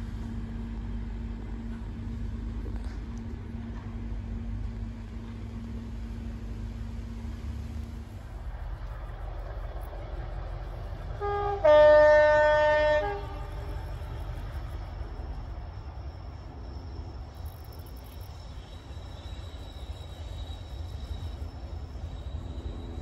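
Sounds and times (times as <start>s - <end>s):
low steady rumble: 0.0s - 22.9s
distant two-tone locomotive horn: 11.1s - 14.0s.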